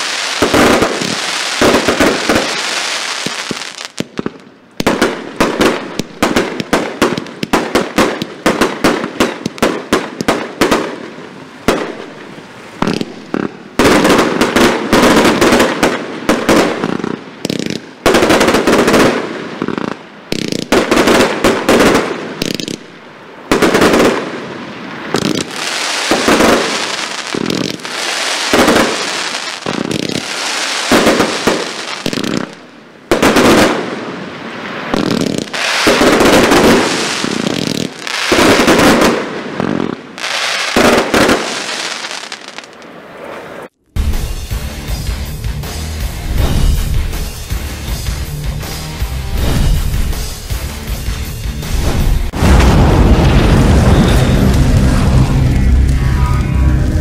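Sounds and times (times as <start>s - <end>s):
firework bursting bangs: 0.0s - 44.3s, 46.3s - 47.6s, 49.3s - 50.7s, 51.6s - 56.0s
firework launch shots: 46.3s - 46.9s, 49.3s - 50.2s, 51.8s - 55.1s.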